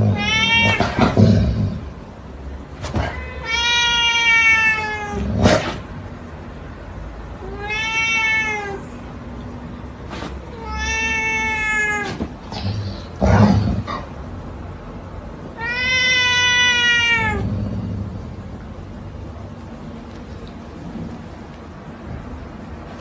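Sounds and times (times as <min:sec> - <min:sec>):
cat meowing: 0:00.0 - 0:01.2, 0:02.9 - 0:05.3, 0:07.4 - 0:09.1, 0:10.4 - 0:13.4, 0:15.5 - 0:17.5.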